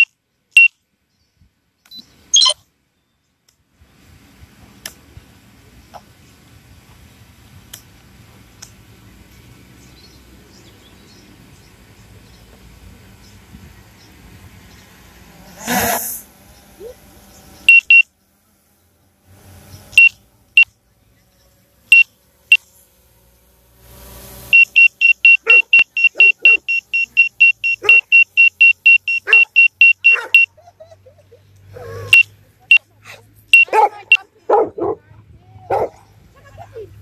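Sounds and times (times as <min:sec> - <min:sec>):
high-pitched electronic beeps: 0:01.9 - 0:02.6, 0:17.7 - 0:18.0, 0:24.5 - 0:30.5
dog barking: 0:25.4 - 0:26.7, 0:27.8 - 0:28.1, 0:29.2 - 0:30.5, 0:33.6 - 0:35.1, 0:35.7 - 0:36.1.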